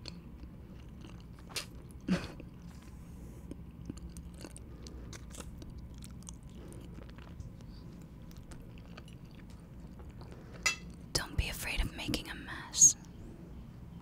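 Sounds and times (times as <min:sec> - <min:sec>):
person chewing: 0:00.0 - 0:11.1.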